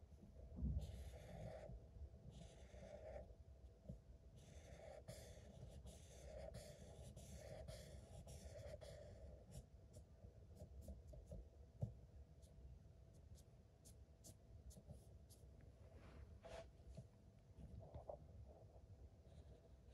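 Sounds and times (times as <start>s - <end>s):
marker scribbling on paper: 4.4s - 11.3s.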